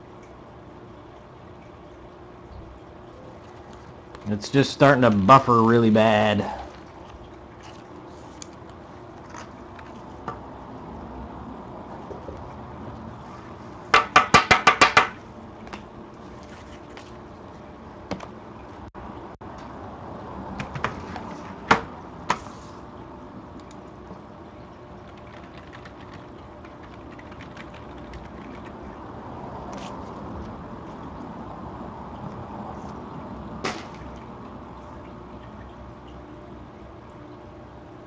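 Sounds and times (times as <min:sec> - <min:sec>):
keyboard clacking: 0:25.0 - 0:28.8.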